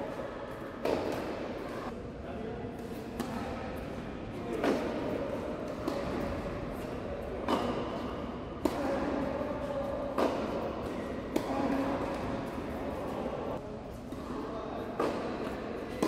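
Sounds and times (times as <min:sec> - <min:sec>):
tennis racket strikes: 0:00.8 - 0:01.6, 0:04.5 - 0:09.4, 0:10.0 - 0:13.2, 0:15.0 - 0:16.0
tennis ball bouncing: 0:00.8 - 0:01.8, 0:04.6 - 0:09.2, 0:10.0 - 0:13.4, 0:15.0 - 0:16.0.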